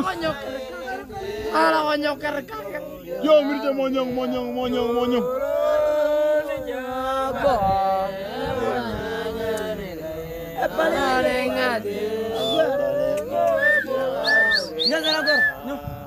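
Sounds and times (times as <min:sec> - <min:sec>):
voices chanting a song: 0:00.0 - 0:16.0
short high whistles: 0:13.4 - 0:15.6.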